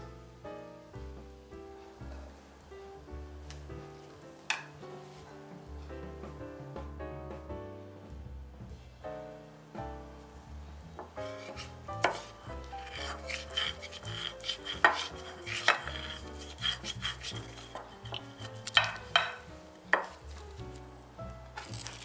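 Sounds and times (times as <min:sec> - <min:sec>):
soft background music: 0:00.0 - 0:22.0
spoon stirring thick paste: 0:11.0 - 0:20.9.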